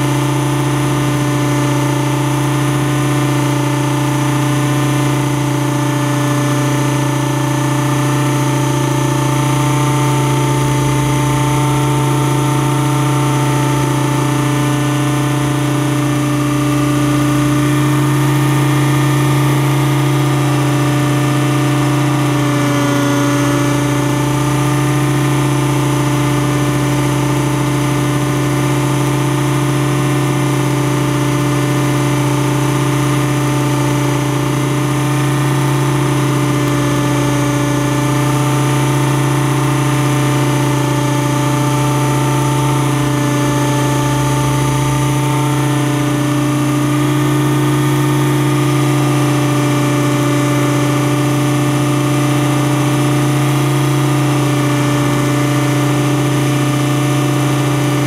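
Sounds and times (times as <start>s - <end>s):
model helicopter motor and rotor: 0.0s - 58.0s.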